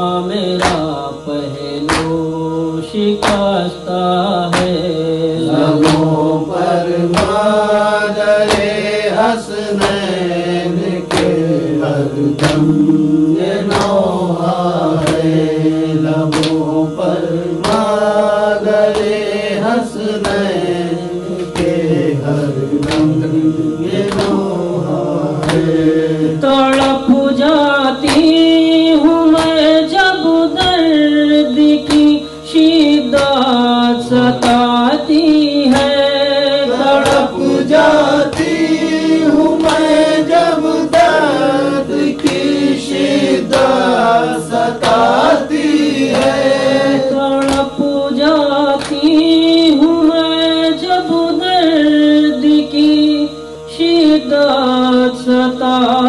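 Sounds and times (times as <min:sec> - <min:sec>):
mournful chanted vocal: 0:00.0 - 0:56.0
steady beat: 0:05.6 - 0:27.2, 0:36.8 - 0:47.8.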